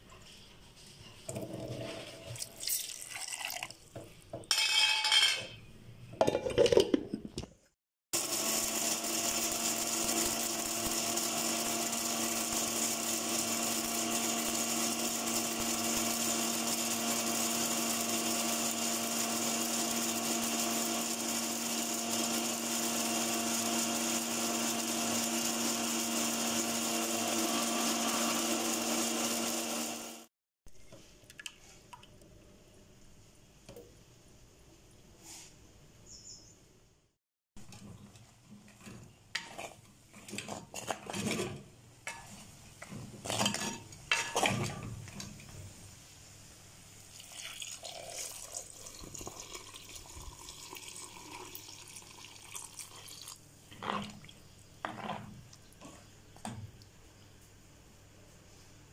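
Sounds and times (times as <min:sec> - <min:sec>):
electric blender motor running: 0:08.2 - 0:30.3.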